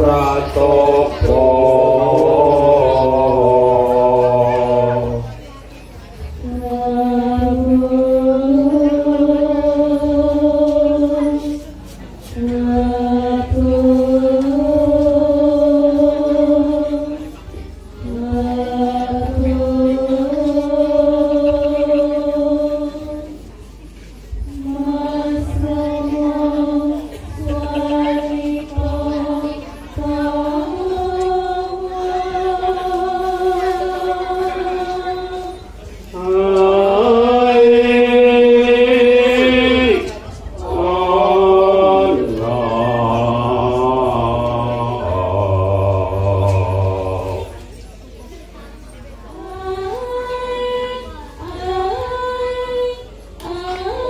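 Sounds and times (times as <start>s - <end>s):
person chanting: 0.0s - 5.5s, 6.4s - 11.6s, 24.6s - 47.8s.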